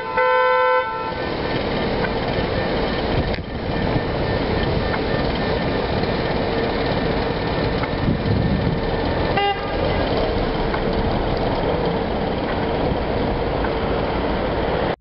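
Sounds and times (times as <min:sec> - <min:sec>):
car horn toot: 0:00.0 - 0:01.2, 0:09.3 - 0:10.1
street traffic: 0:00.0 - 0:15.0.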